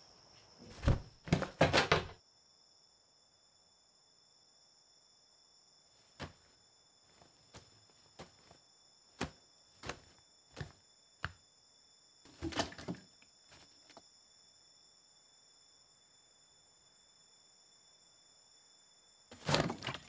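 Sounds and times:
faint thuds: 0:00.7 - 0:02.2, 0:06.1 - 0:08.6, 0:09.2 - 0:11.4
plastic water jug knocking and rattling: 0:00.8 - 0:02.2, 0:12.3 - 0:13.1, 0:19.3 - 0:20.0
footsteps: 0:06.0 - 0:08.6, 0:09.2 - 0:11.4.

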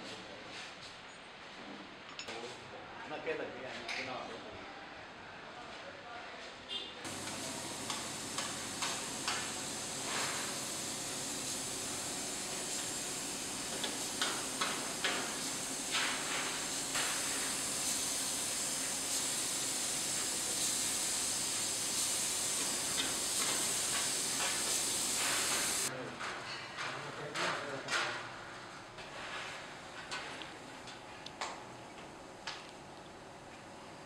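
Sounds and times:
paint spray gun hissing: 0:07.1 - 0:25.9.

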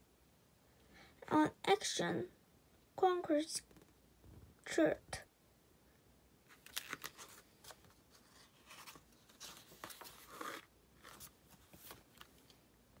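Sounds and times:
book pages turning: 0:06.5 - 0:12.6.

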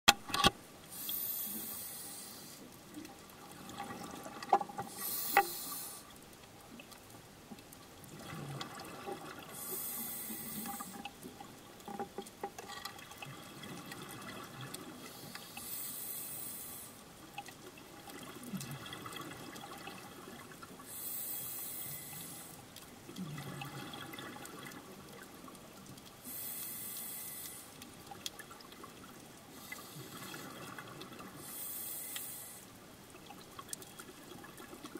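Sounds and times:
regulator breathing hiss: 0:00.9 - 0:02.7, 0:04.9 - 0:06.1, 0:09.6 - 0:11.0, 0:15.1 - 0:17.0, 0:20.9 - 0:22.6, 0:26.2 - 0:27.8, 0:29.5 - 0:30.4, 0:31.4 - 0:32.7
bubbling and gurgling: 0:03.0 - 0:05.1, 0:07.9 - 0:15.1, 0:17.2 - 0:20.9, 0:22.9 - 0:26.0, 0:28.0 - 0:31.4, 0:32.9 - 0:34.9.

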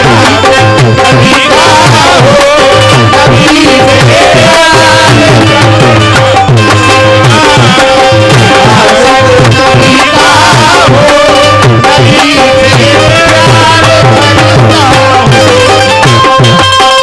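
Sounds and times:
hand drums beating: 0:00.0 - 0:17.0
wavering melody: 0:00.0 - 0:17.0.

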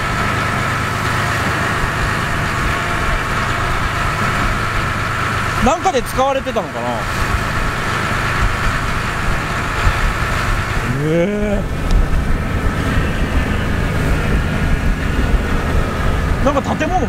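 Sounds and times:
boat engine running: 0:00.0 - 0:17.0
rushing wind: 0:00.0 - 0:17.0
water noise: 0:00.0 - 0:17.0
rising voice-like call: 0:10.8 - 0:11.8.

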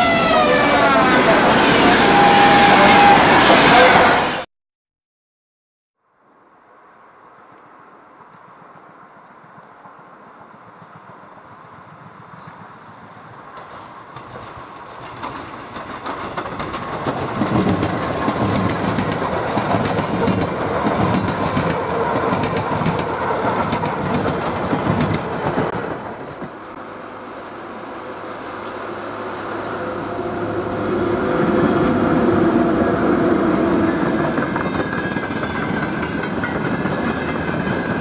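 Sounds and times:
electric train passing: 0:00.0 - 0:04.4, 0:08.8 - 0:38.0
wheels clattering over rails: 0:13.4 - 0:26.7, 0:33.7 - 0:38.0.

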